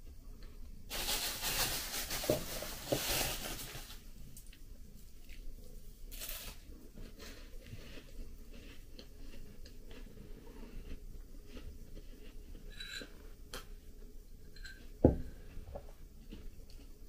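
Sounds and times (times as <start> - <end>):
plastic bag crinkling: 0.9 - 4.1
wafer crunching and chewing: 7.0 - 12.7.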